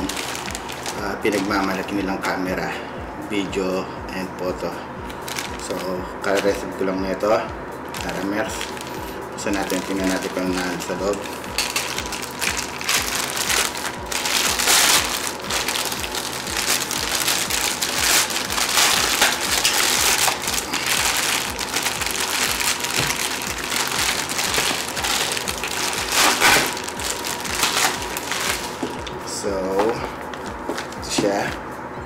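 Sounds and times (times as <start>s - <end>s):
plastic mailer bag crinkling: 0.0s - 2.5s, 5.1s - 6.7s, 7.9s - 29.2s.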